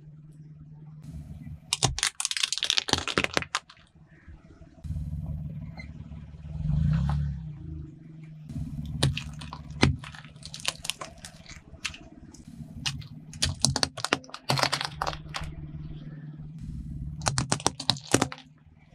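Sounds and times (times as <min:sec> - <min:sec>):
low engine hum: 0:00.0 - 0:01.8, 0:03.9 - 0:18.9
plastic and candy cracking under tyre: 0:01.6 - 0:04.0, 0:08.8 - 0:15.6, 0:17.2 - 0:18.6.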